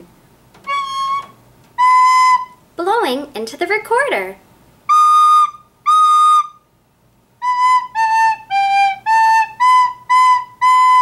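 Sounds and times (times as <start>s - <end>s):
recorder notes: 0.0s - 2.6s, 4.9s - 6.6s, 7.4s - 11.0s.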